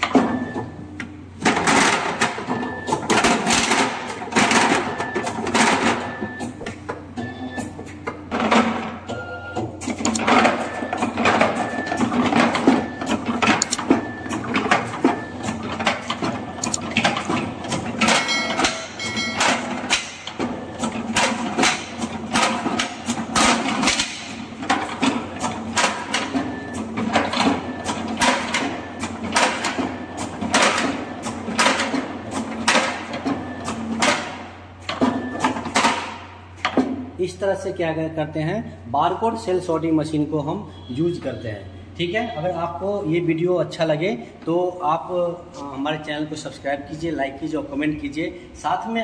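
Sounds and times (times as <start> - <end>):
machine clacks and knocks: 1.4 - 6.4, 9.8 - 37.0
short electronic beeps: 40.7 - 41.2.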